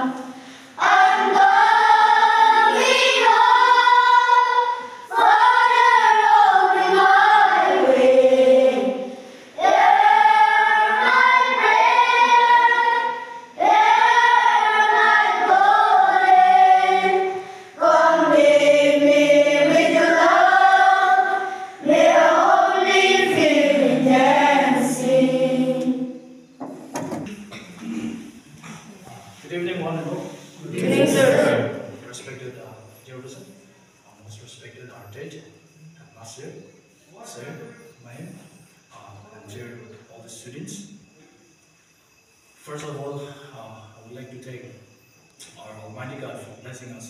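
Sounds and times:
children's choir singing: 0.0s - 28.8s, 30.2s - 32.5s.

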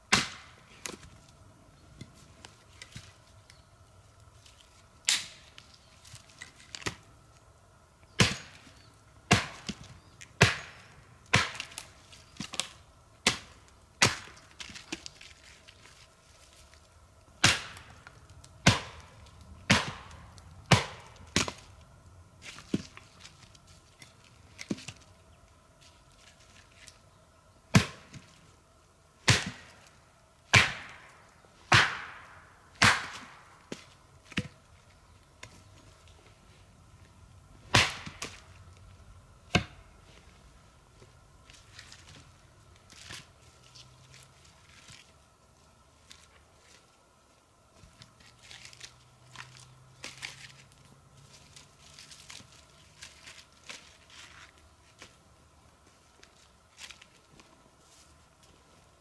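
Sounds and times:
axe chopping wood: 0.1s - 1.1s, 8.2s - 8.6s, 9.3s - 15.1s, 17.4s - 18.0s, 18.6s - 21.6s, 27.7s - 28.3s, 29.2s - 29.8s, 30.5s - 34.6s, 37.7s - 38.5s, 39.5s - 39.9s.

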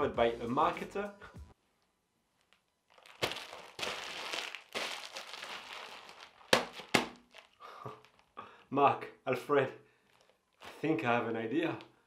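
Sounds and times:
bubble wrap crackling: 2.3s - 8.4s, 10.0s - 11.0s
bubble wrap snap: 2.4s - 8.3s.

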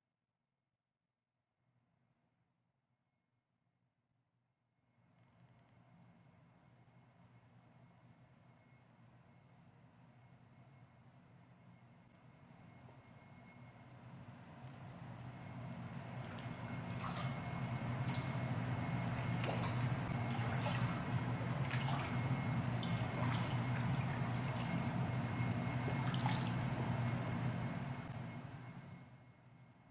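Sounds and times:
steady low hum: 5.2s - 29.9s
fish splashing in water: 16.0s - 26.8s.

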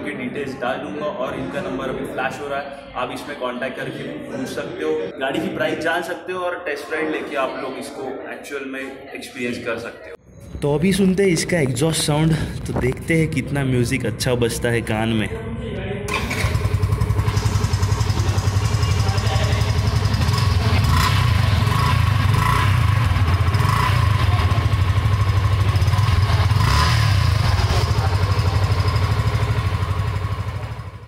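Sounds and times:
motorcycle engine idling: 16.1s - 31.0s.

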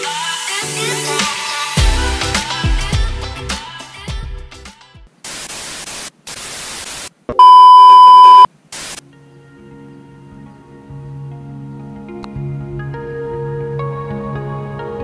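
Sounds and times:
tv static hiss: 5.2s - 9.0s
test-tone beep: 7.4s - 8.5s
soft background music: 9.0s - 15.0s.

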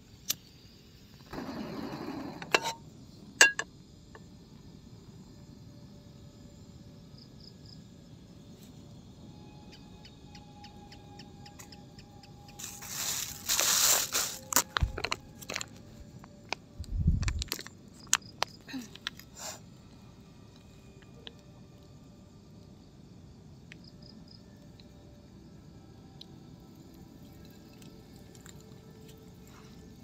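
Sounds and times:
plastic packaging crinkling: 12.6s - 15.7s.

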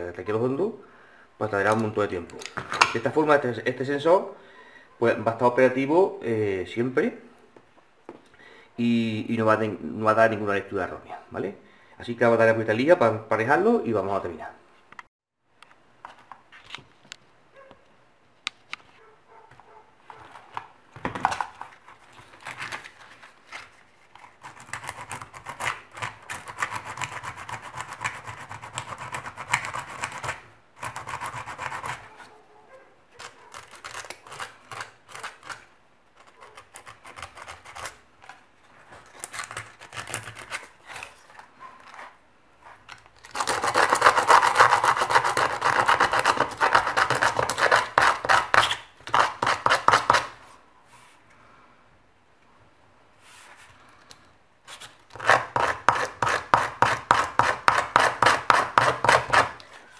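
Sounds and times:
sandpaper rubbing on metal: 43.4s - 50.4s.

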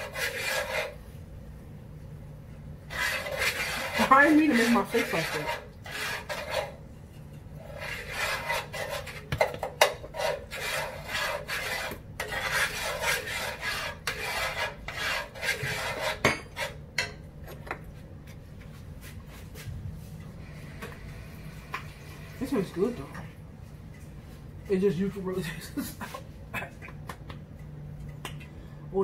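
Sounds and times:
metal spoon scraping skillet: 0.0s - 1.0s, 2.9s - 17.2s.

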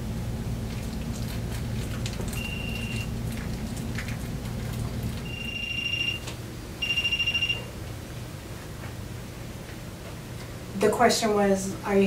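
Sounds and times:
electronic alarm beeps: 2.4s - 3.1s, 5.2s - 7.7s.

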